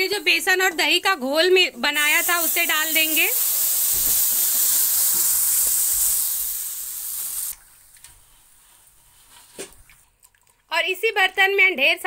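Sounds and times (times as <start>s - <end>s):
batter sizzling in hot oil: 1.8s - 7.6s.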